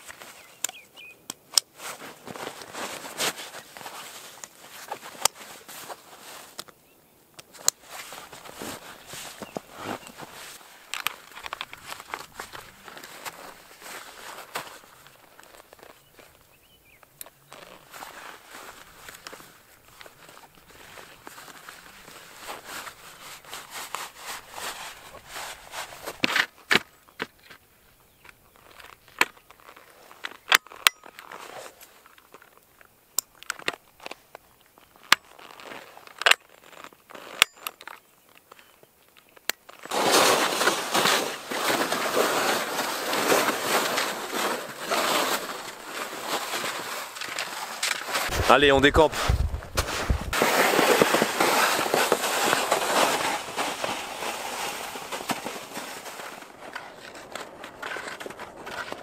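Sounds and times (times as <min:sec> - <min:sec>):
boots crunching wet snow: 0:07.8 - 0:16.4, 0:39.9 - 0:59.0.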